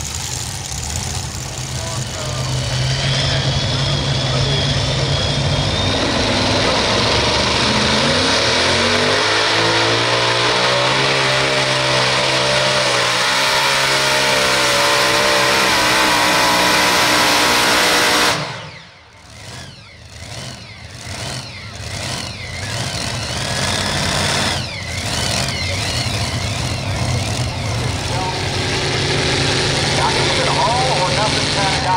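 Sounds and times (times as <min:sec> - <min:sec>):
quieter uneven engine sound: 0:00.0 - 0:08.1, 0:18.5 - 0:31.9
tractor engines at full throttle: 0:00.0 - 0:31.9.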